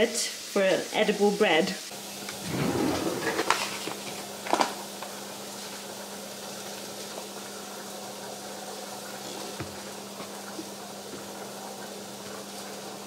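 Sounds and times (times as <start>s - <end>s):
low electrical hum: 2.0s - 7.0s.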